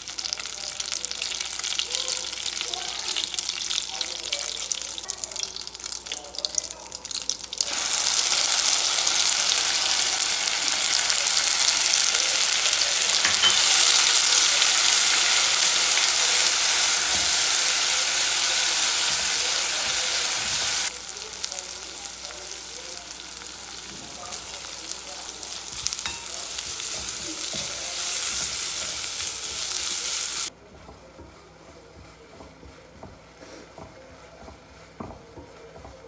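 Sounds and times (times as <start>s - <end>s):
loud sizzle of paste in fat: 0.0s - 30.6s
spices frying in hot fat: 0.0s - 36.0s
spatula stirring in pot: 1.1s - 36.0s.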